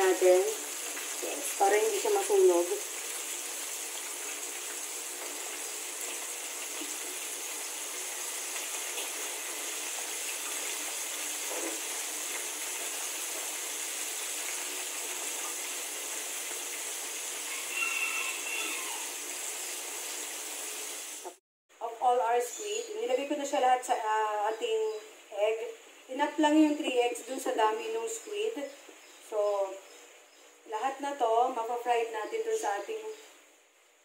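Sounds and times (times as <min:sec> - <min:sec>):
hot oil sizzling: 0:00.0 - 0:21.4.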